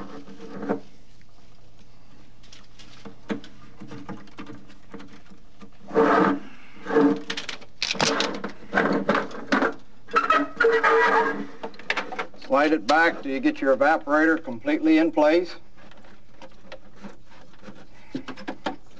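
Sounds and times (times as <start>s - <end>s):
squeaky scrapes and rubs: 5.8s - 7.2s, 10.1s - 11.6s.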